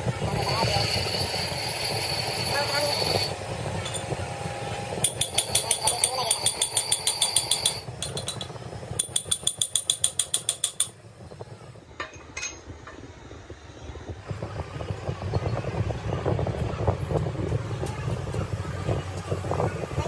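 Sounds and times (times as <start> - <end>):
low workshop rumble: 0.0 - 20.0
rapid ringing metallic clicks: 5.0 - 11.0.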